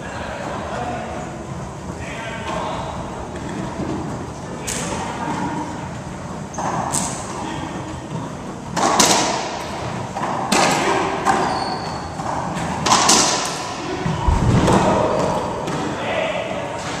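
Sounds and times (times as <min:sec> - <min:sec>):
racquetball hitting racquets and walls: 0:08.7 - 0:16.2
deep thud: 0:14.1 - 0:15.8.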